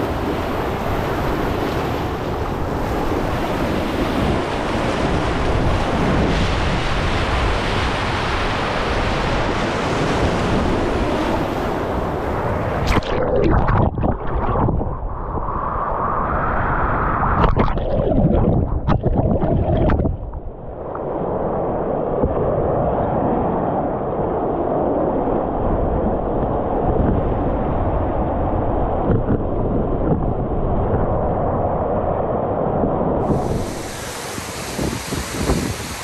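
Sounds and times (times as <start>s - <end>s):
choppy muffled splashing: 12.6s - 15.6s, 17.4s - 21.2s
floodwater rushing over dam: 33.3s - 36.0s.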